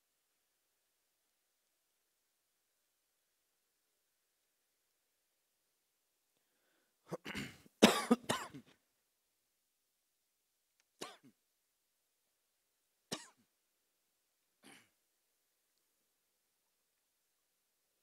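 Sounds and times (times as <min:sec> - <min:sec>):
person coughing: 0:07.1 - 0:08.7, 0:13.1 - 0:13.4, 0:14.6 - 0:15.0.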